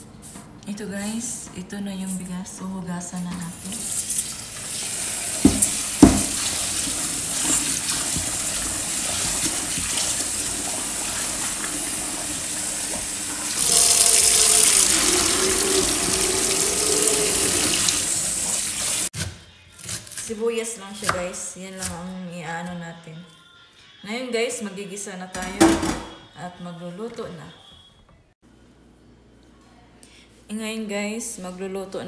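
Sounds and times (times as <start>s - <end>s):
sharp knocks: 5.4s - 6.4s
tap running into steel bowl: 5.4s - 6.6s.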